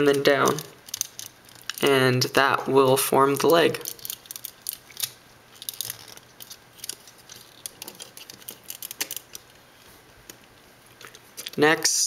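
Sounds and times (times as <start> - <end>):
plastic toy parts clicking: 0.1 - 1.8, 3.8 - 9.5, 11.0 - 11.6.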